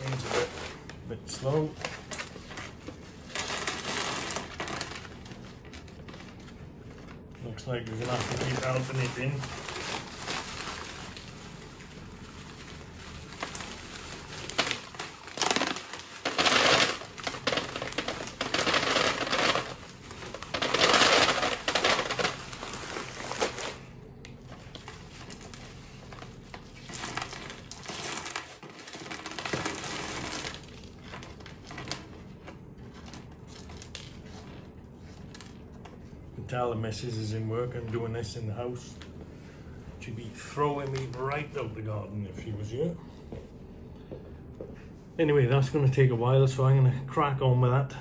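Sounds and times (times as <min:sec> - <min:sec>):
paper funnel rustling: 0:00.0 - 0:36.1
plastic bag crinkling: 0:00.0 - 0:36.1.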